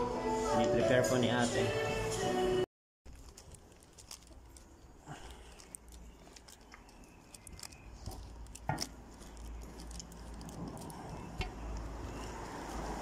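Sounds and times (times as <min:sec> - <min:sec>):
plastic bags crackling: 0:03.1 - 0:13.0.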